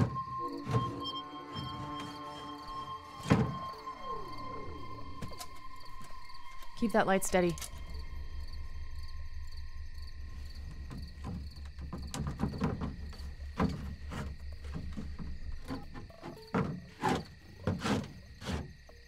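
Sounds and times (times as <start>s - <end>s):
crickets chirring: 0.0s - 19.0s
wooden lid knocks and creaks: 3.2s - 3.7s, 10.6s - 18.7s.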